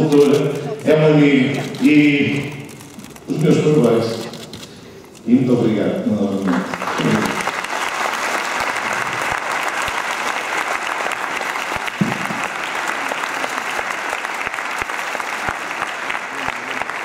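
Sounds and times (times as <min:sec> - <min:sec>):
large audience applauding: 0:06.4 - 0:17.0.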